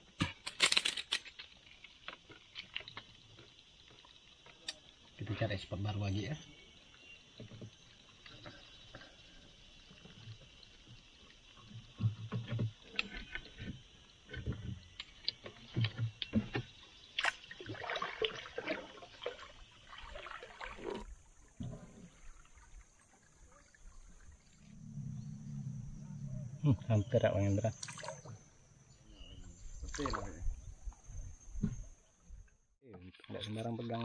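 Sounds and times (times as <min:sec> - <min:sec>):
paddle splashing in water: 0:11.6 - 0:24.7, 0:27.7 - 0:28.4, 0:29.8 - 0:32.0.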